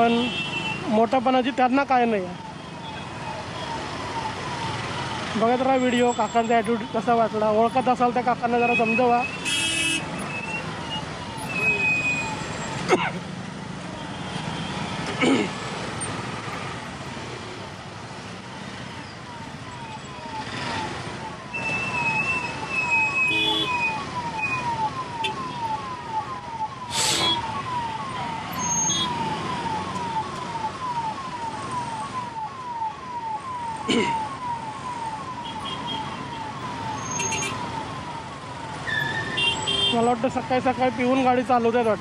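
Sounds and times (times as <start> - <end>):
ambulance siren: 0.0 - 13.0, 13.6 - 42.0
traffic and engines: 0.0 - 42.0.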